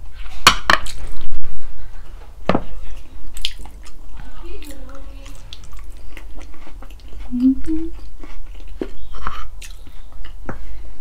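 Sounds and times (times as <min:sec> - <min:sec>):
person chewing food: 0:00.0 - 0:11.0
person humming: 0:07.3 - 0:08.0.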